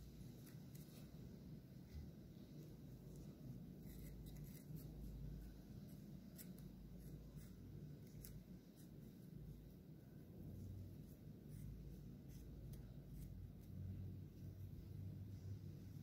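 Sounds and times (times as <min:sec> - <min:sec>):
low steady hum: 0:00.0 - 0:16.0
wooden stick scraping cone: 0:02.3 - 0:08.9.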